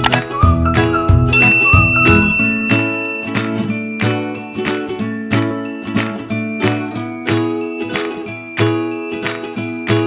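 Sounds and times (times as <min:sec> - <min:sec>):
tinkling children's tune: 0:01.3 - 0:10.0.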